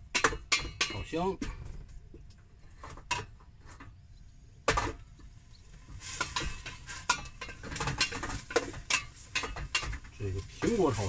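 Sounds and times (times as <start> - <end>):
spatula scraping a pot: 5.9 - 10.0.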